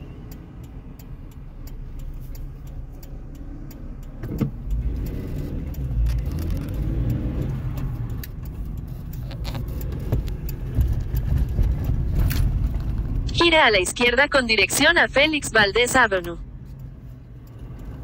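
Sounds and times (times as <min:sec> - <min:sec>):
car engine and road rumble: 0:00.0 - 0:18.0.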